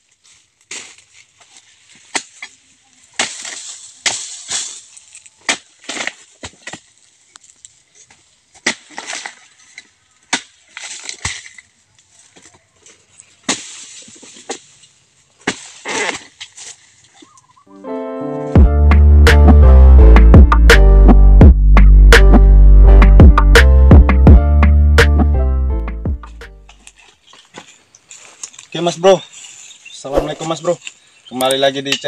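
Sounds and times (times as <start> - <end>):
fronds rustling: 0.0 - 17.7, 26.6 - 32.0
chisel chopping palm fronds: 2.0 - 2.6, 3.2 - 6.9, 8.6 - 9.5, 10.3 - 11.6, 13.4 - 14.7, 15.4 - 16.8.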